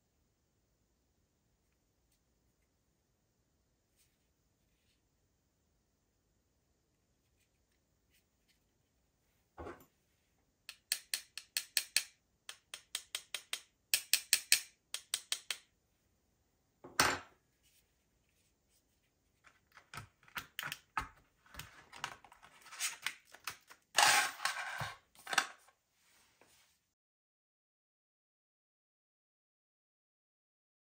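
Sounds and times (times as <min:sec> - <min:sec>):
quick clicks and taps: 0:10.7 - 0:15.7.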